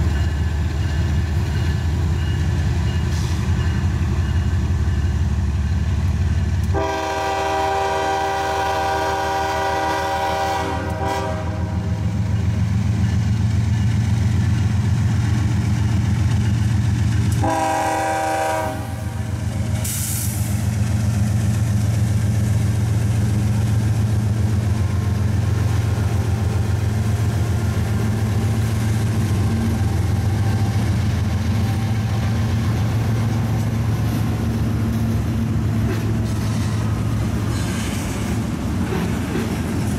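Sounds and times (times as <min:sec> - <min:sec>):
locomotive engine rumble: 0:00.0 - 0:39.9
locomotive horn blasts: 0:06.7 - 0:12.0, 0:17.4 - 0:19.3.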